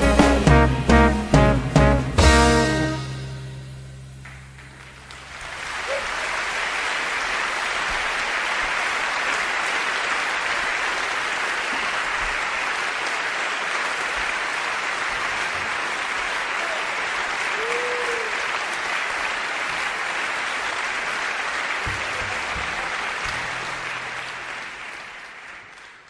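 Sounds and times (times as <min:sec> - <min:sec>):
brass swing music: 0:00.0 - 0:05.0
steady applause-like noise: 0:04.2 - 0:26.0.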